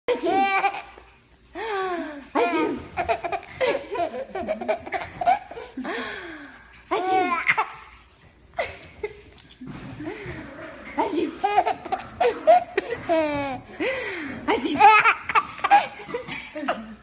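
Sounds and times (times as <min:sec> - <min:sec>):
baby laughing: 0:00.1 - 0:01.1, 0:02.3 - 0:05.8, 0:06.9 - 0:08.0, 0:11.4 - 0:13.8, 0:14.6 - 0:17.0.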